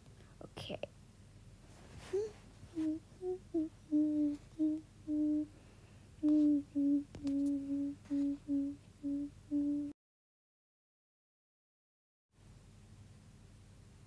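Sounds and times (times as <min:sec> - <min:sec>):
person humming: 0:02.1 - 0:05.6, 0:06.2 - 0:10.0.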